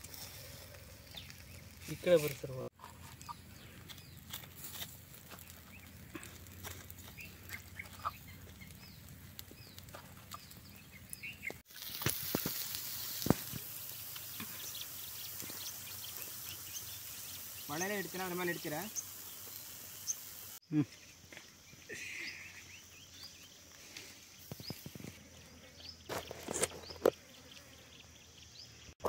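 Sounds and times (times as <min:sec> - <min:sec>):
chicken sizzling over charcoal: 0:00.0 - 0:20.6, 0:21.6 - 0:25.2
fire crackling: 0:00.0 - 0:20.6
birds chirping: 0:00.2 - 0:29.0.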